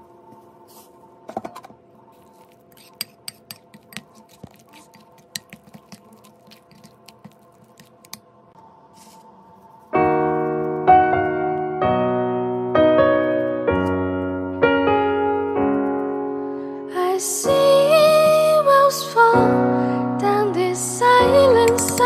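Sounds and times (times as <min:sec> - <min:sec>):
spoon scraping a bowl: 0:02.1 - 0:08.2, 0:21.7 - 0:22.0
loud piano music: 0:10.0 - 0:16.8.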